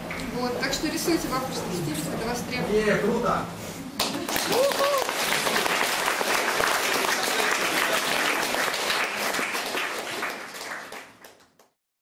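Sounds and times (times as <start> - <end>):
audience applauding: 4.0 - 11.8.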